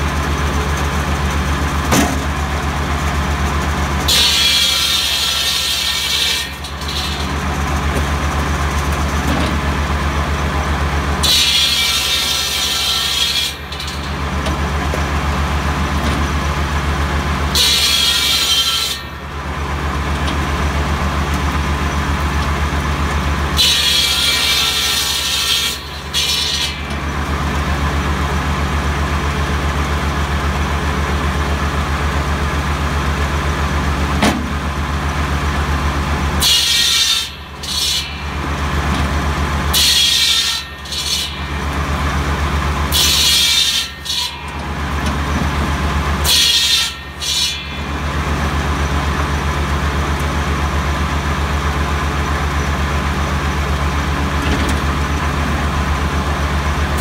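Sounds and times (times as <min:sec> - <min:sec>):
diesel engine and blade droning: 0:00.0 - 0:57.0
saw blade rasping through branches: 0:04.0 - 0:09.1, 0:11.2 - 0:14.8, 0:23.5 - 0:27.2, 0:36.4 - 0:49.9.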